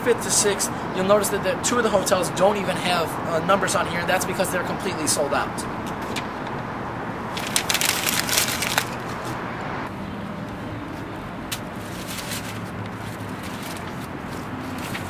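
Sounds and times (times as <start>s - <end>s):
paper crumpling: 7.3s - 9.2s, 11.8s - 15.0s
faint paper rustles: 7.3s - 9.4s, 10.9s - 15.0s.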